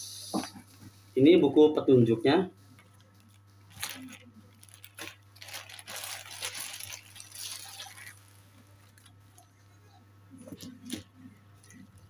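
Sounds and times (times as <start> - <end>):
rustling antenna cable handling: 2.8 - 9.2.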